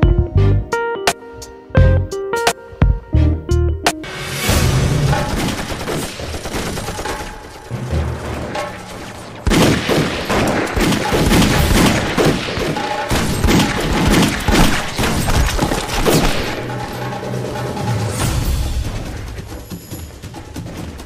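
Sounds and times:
machine-gun and rifle fire: 0:05.0 - 0:17.2.

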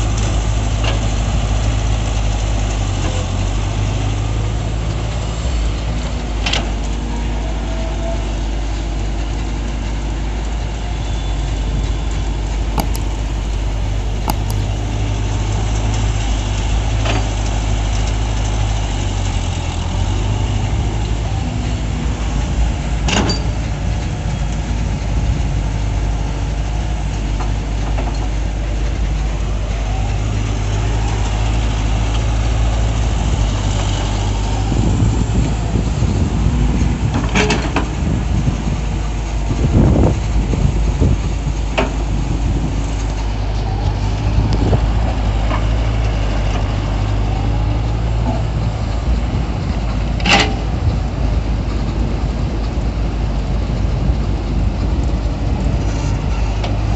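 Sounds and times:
excavator diesel engine: 0:00.0 - 0:56.9.

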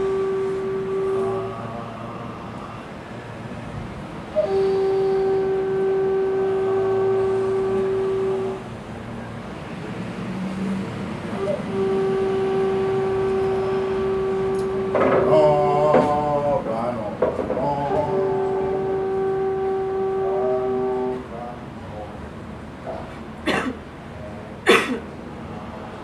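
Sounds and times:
long horn-like notes: 0:00.0 - 0:03.1, 0:04.3 - 0:08.8, 0:11.3 - 0:22.1
voices: 0:00.0 - 0:03.1, 0:04.3 - 0:08.6, 0:11.3 - 0:24.9.

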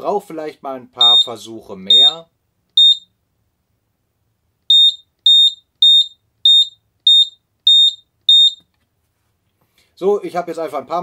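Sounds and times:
smoke detector short high beeps: 0:01.0 - 0:02.2, 0:02.8 - 0:03.1, 0:04.7 - 0:08.6.

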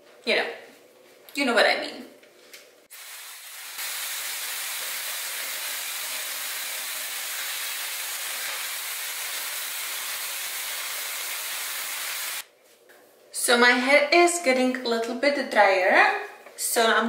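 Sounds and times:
hair dryer blowing: 0:02.9 - 0:12.4.

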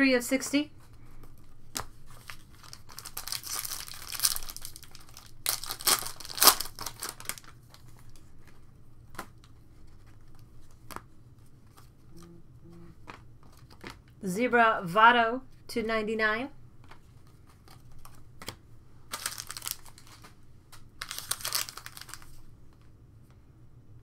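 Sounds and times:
foil card pack tearing: 0:02.2 - 0:07.8, 0:19.1 - 0:20.2, 0:21.0 - 0:22.4.

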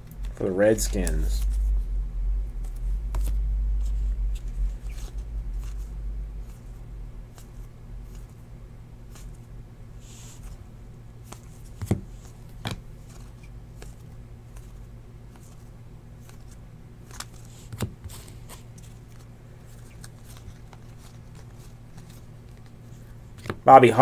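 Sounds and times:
cards sliding together: 0:16.2 - 0:23.6.

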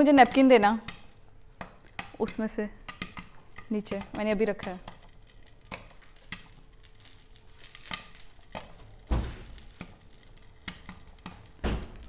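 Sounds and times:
popcorn popping in a pan: 0:00.0 - 0:12.0
heavy thump: 0:09.1 - 0:09.5, 0:11.6 - 0:12.0.

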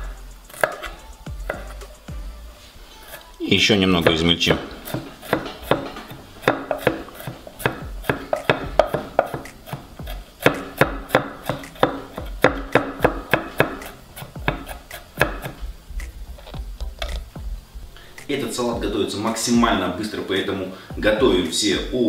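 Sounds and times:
knife chopping on wooden board: 0:00.5 - 0:01.9, 0:04.0 - 0:17.2.

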